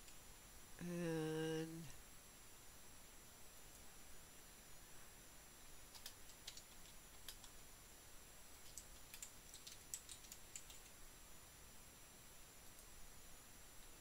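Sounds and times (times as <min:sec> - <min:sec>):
faint keyboard keystrokes: 0:05.9 - 0:07.6, 0:08.6 - 0:11.0.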